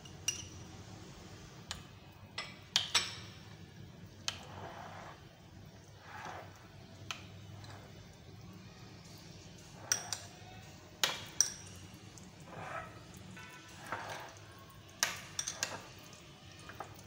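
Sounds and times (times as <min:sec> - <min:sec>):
spoon clinking against glass: 0:00.0 - 0:00.6, 0:09.8 - 0:10.4, 0:11.0 - 0:11.8, 0:15.0 - 0:15.9
spoon stirring wet food: 0:01.7 - 0:17.0.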